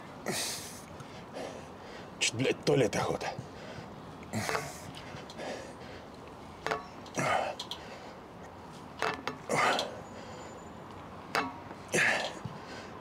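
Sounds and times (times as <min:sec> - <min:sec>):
man breathing hard: 0:00.2 - 0:02.2, 0:03.4 - 0:06.2, 0:07.2 - 0:08.3, 0:11.9 - 0:13.0.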